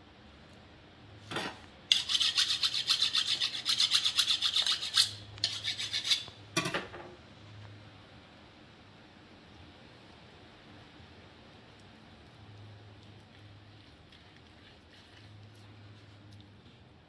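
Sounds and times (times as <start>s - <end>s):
rasping scrapes: 1.9s - 6.3s.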